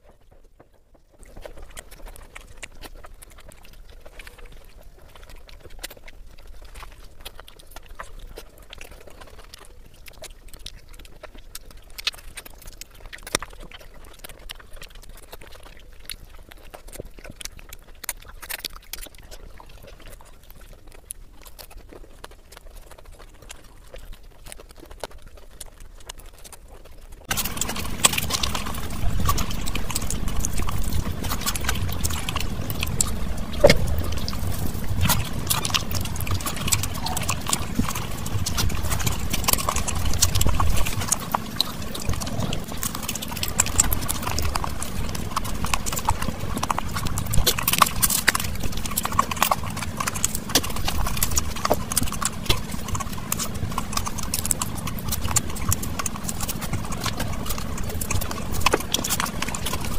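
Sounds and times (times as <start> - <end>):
wet chewing and lip smacks: 1.1 - 59.9
fingers mixing food on plate: 27.3 - 59.9.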